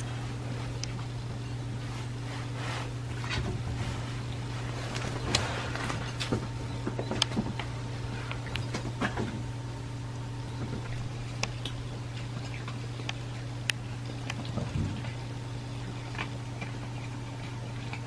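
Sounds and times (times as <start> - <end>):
kittens eating with crunches: 0.0 - 18.0
steady low hum: 0.0 - 18.0.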